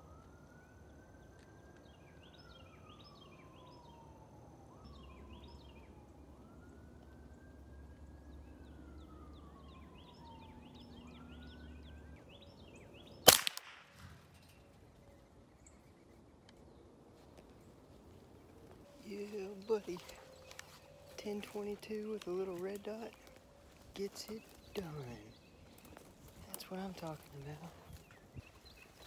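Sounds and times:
distant siren wailing: 0:00.0 - 0:29.0
rifle shot with echo: 0:13.2 - 0:14.3.

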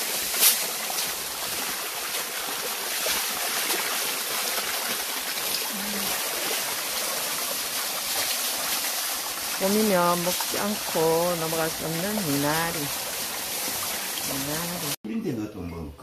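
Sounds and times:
running water splashing: 0:00.0 - 0:15.0.

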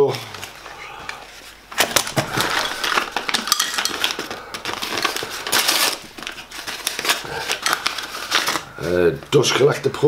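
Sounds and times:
cardboard rustling and crackling: 0:00.1 - 0:10.0.

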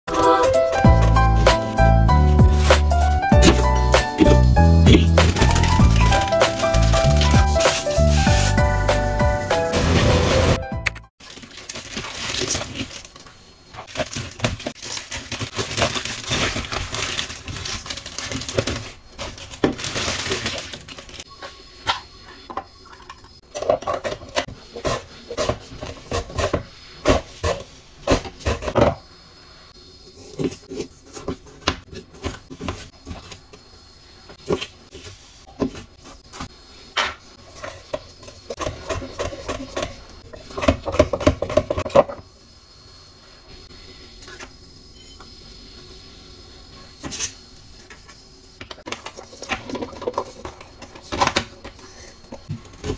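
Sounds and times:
plastic bags rustling: 0:11.2 - 0:21.3.

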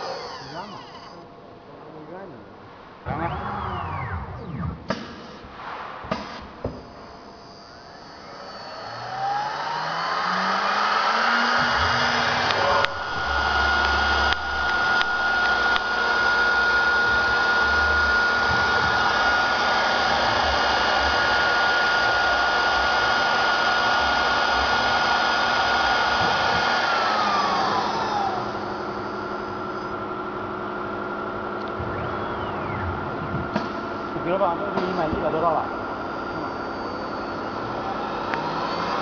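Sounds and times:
router bits cutting wood: 0:00.0 - 0:01.2, 0:07.9 - 0:29.0, 0:36.4 - 0:39.0
spindle motors high whine: 0:00.0 - 0:02.3, 0:02.9 - 0:05.5, 0:06.1 - 0:39.0.

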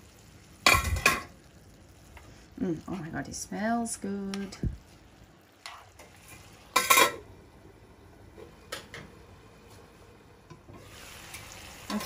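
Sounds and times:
metal lid clattering onto pan: 0:06.8 - 0:07.2.

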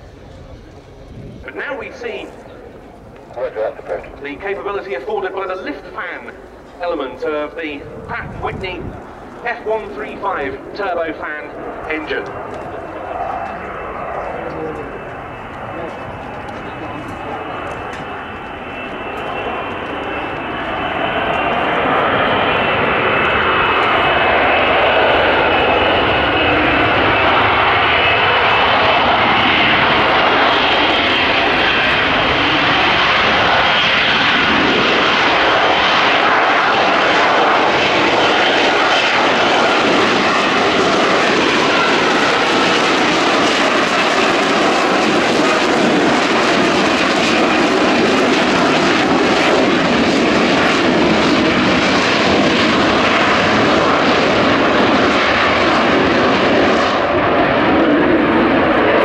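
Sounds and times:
loud steady jet noise: 0:00.0 - 0:59.0.

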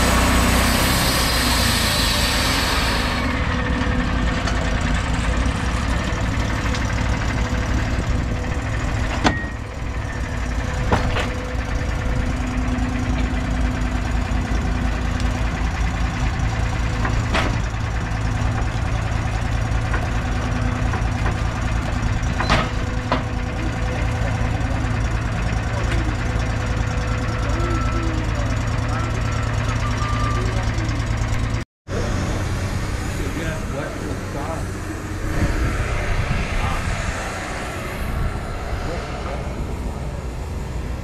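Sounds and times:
sawmill engine running: 0:00.0 - 0:41.0
sharp knocks and clanks: 0:09.0 - 0:09.6, 0:10.8 - 0:11.5, 0:17.0 - 0:17.8, 0:20.8 - 0:23.4.

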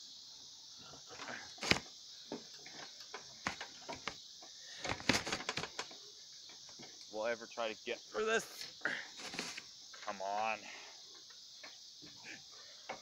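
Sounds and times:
insects chirring: 0:00.0 - 0:13.0
bike knocking over grass: 0:01.3 - 0:04.2, 0:04.8 - 0:05.9.

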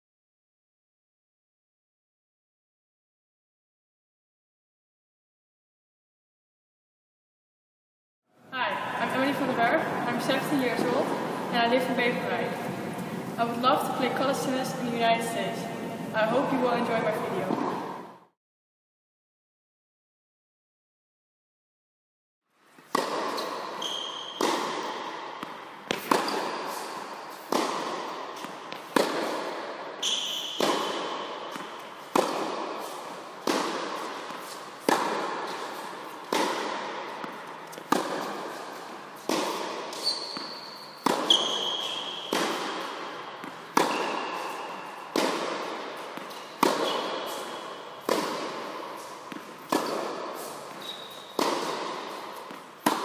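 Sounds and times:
shoes squeaking on court: 0:22.7 - 0:27.6, 0:30.0 - 0:36.4, 0:37.2 - 0:53.0.

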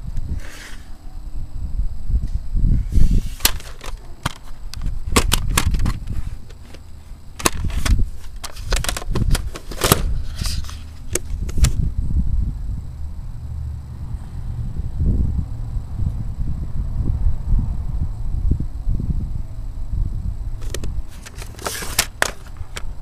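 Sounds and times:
plastic cd cases clicking: 0:03.4 - 0:06.8, 0:07.4 - 0:11.8, 0:20.6 - 0:22.9.

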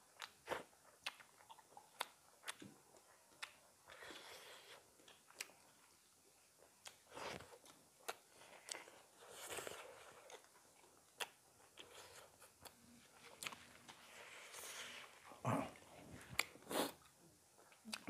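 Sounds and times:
chewing food: 0:00.0 - 0:18.0.

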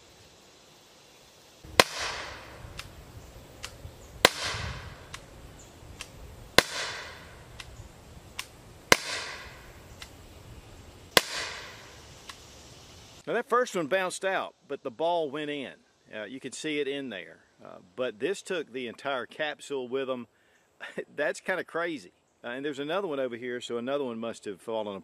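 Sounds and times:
revolver shots: 0:01.7 - 0:03.0, 0:03.6 - 0:05.3, 0:06.0 - 0:07.8, 0:08.4 - 0:10.1, 0:11.1 - 0:12.0
soft clicks: 0:03.6 - 0:03.8, 0:06.0 - 0:06.2, 0:07.5 - 0:07.8, 0:10.0 - 0:10.2.

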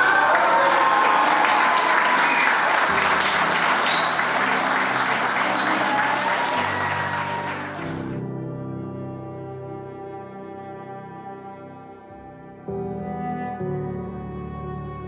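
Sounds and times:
crowd applauding: 0:00.0 - 0:08.2
low background music: 0:02.7 - 0:15.0.

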